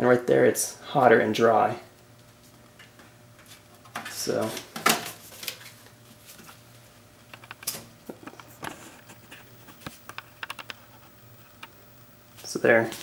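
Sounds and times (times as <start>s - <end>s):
faint steady hum: 0.0s - 13.0s
paper crinkling and tapping: 2.2s - 6.6s, 7.2s - 11.0s.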